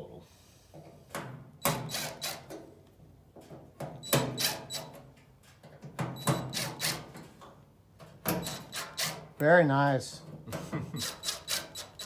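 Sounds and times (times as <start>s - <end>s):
impact driver hammering: 1.6s - 2.6s, 6.1s - 7.1s, 8.2s - 9.3s.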